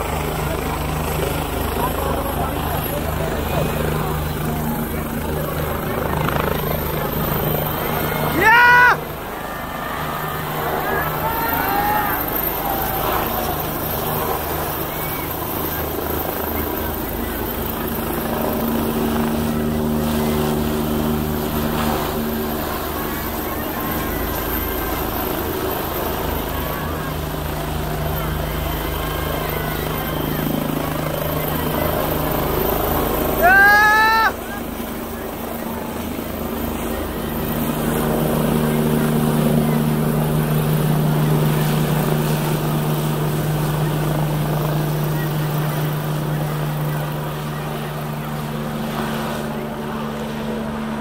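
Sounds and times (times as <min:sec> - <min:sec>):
helicopter engine hum: 0:00.0 - 0:51.0
helicopter rotor beating: 0:00.0 - 0:51.0.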